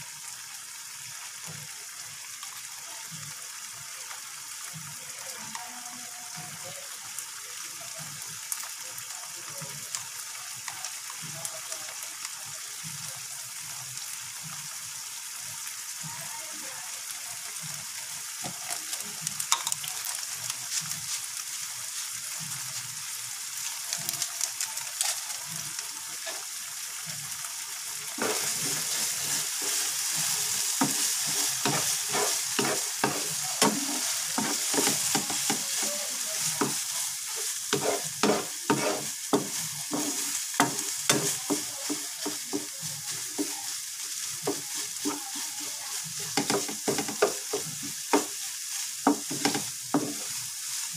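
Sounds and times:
eggs sizzling in oil: 0.0s - 50.9s
spatula scraping and tapping pan: 18.4s - 22.2s, 28.2s - 50.9s.

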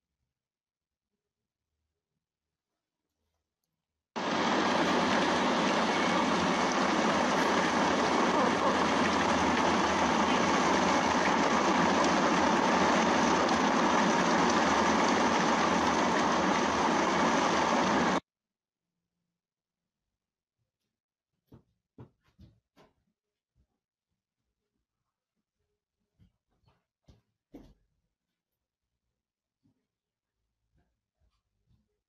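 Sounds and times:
rain hiss: 4.2s - 18.2s
tyres on wet road: 4.2s - 18.2s.

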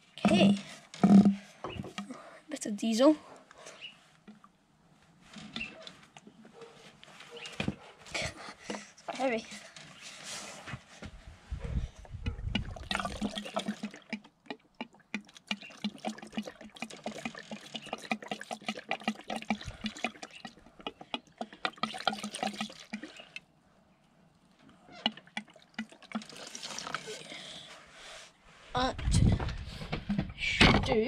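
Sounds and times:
liquid pouring into plastic tub: 12.1s - 23.5s, 24.8s - 27.4s.

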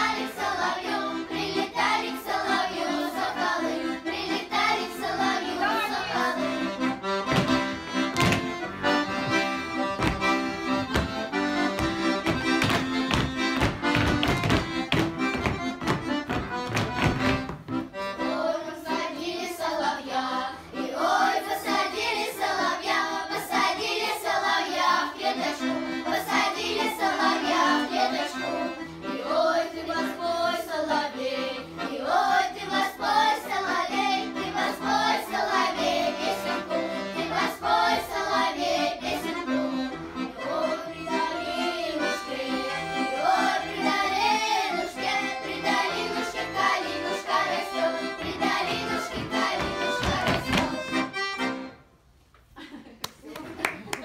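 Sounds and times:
girls choir singing: 0.0s - 13.2s, 17.8s - 51.5s
accordion playing folk tune: 0.0s - 52.2s.

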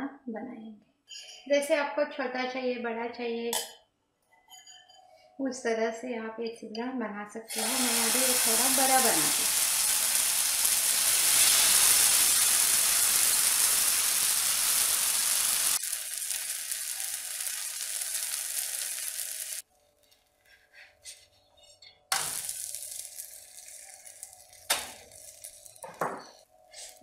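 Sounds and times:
batter sizzling in hot oil: 7.5s - 20.3s, 22.1s - 27.0s.

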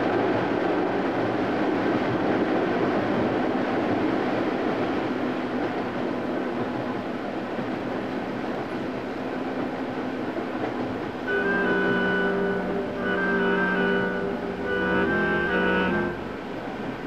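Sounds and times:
passenger train running: 0.0s - 17.0s
music: 11.3s - 16.2s.

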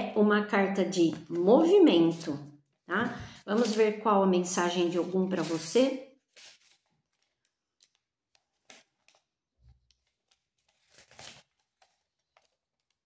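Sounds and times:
cards rustling and tapping: 6.3s - 13.0s.

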